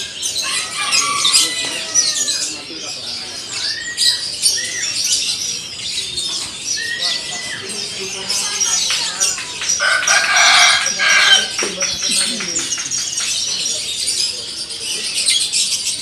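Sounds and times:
songbirds chirping and whistling: 0.0 - 16.0
rooster crowing: 0.4 - 2.4, 9.6 - 11.7.

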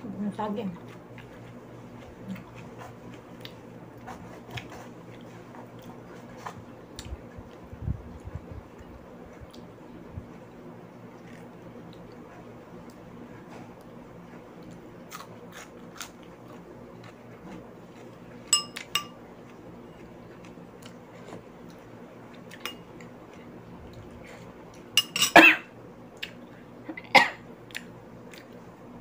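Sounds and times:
metal spoon clinking on dish: 18.5 - 19.2, 25.0 - 25.4
person coughing: 25.2 - 25.7, 26.9 - 27.4.

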